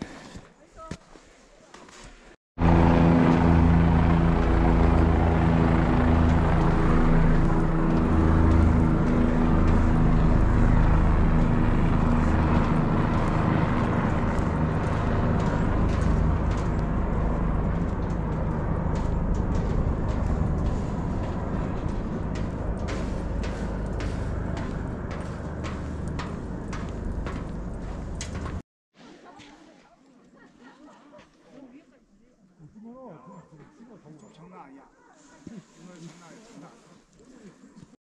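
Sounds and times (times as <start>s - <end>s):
engine drone: 2.6s - 28.6s.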